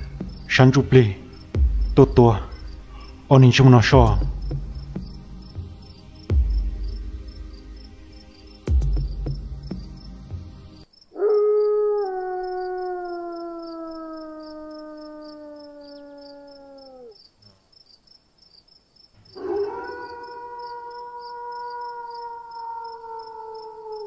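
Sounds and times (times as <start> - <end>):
crickets chirping: 0.0 - 24.0
dog howling: 11.1 - 17.2, 19.3 - 24.0.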